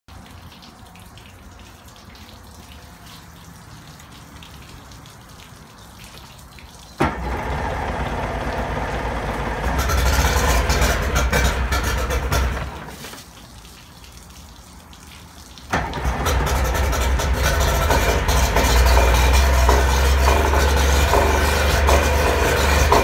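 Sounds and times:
outboard motor running and revving: 7.0s - 13.0s, 15.8s - 23.0s.

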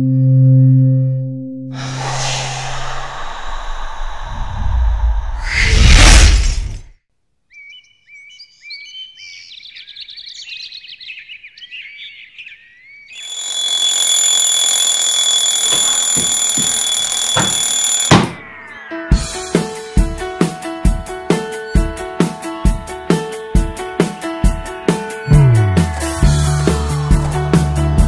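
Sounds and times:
whoosh: 1.8s - 6.9s
birds chirping: 7.5s - 14.2s
alarm clock ringing: 13.2s - 19.1s.

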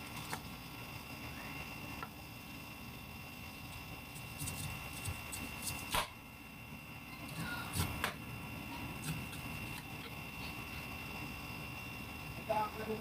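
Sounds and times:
knife cutting pineapple rind: 4.1s - 6.1s, 7.3s - 8.2s, 8.9s - 9.9s.

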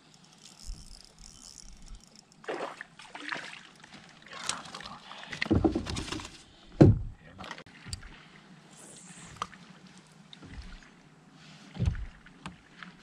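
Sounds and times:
water splashing and trickling: 0.0s - 6.6s, 7.2s - 13.0s
knocks and rustles of gear: 5.4s - 7.1s.

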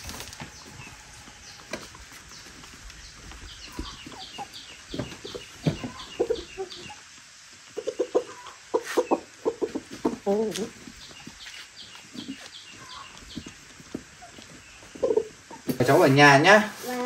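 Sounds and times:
chickens clucking: 0.0s - 17.0s.

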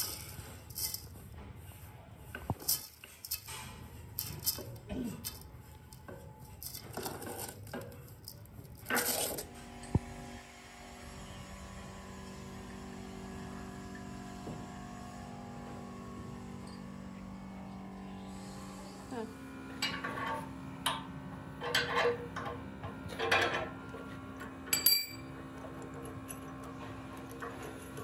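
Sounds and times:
metal parts clinking and knocking: 0.0s - 1.1s, 2.6s - 9.4s, 24.7s - 25.3s
machine hum: 9.4s - 28.0s.

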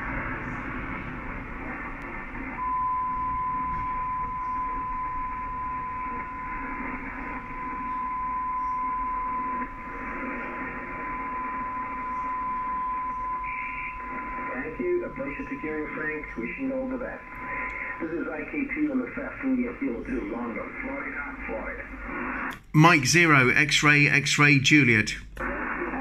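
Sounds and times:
radio static hiss: 0.0s - 2.8s, 4.3s - 26.0s
radio carrier whistle: 2.6s - 18.3s.

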